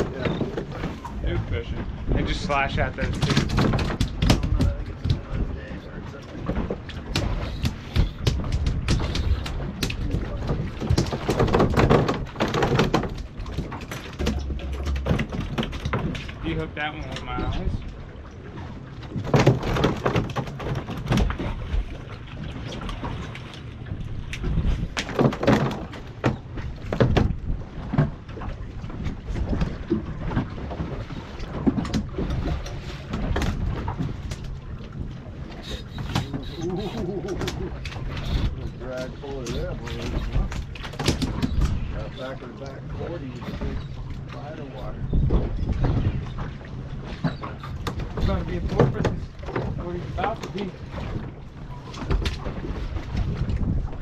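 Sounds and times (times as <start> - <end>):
knocks and thuds on boat deck: 0.0 - 17.8, 18.6 - 42.3, 43.0 - 54.0
rushing water: 0.0 - 54.0
wind: 0.0 - 54.0
knocks on boat deck: 3.0 - 5.4, 6.5 - 16.2, 19.1 - 21.6, 24.4 - 28.2, 47.8 - 50.5.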